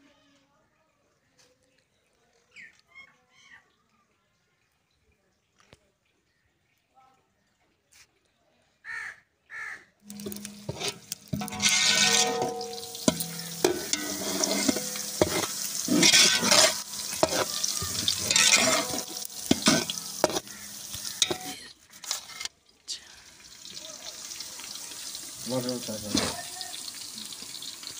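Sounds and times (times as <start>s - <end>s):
onions sizzling in a pot: 10.0s - 27.9s
ladle scraping and clicking on pot: 10.1s - 22.5s.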